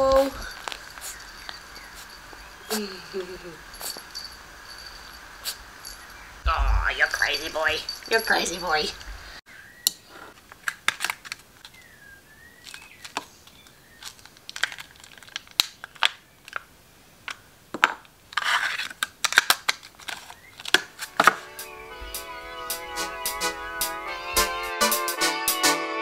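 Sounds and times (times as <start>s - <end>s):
plastic pack crinkling: 10.5s - 11.8s, 12.6s - 16.7s, 18.3s - 21.4s
plastic rustle: 12.6s - 16.6s, 18.3s - 21.4s.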